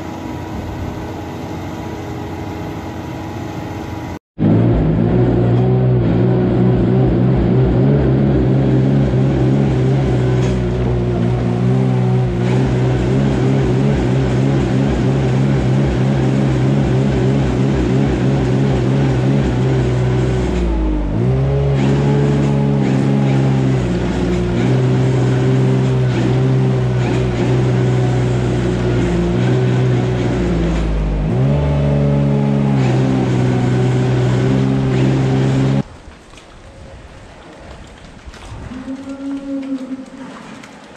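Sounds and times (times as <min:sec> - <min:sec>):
small engine running: 0:04.4 - 0:35.8.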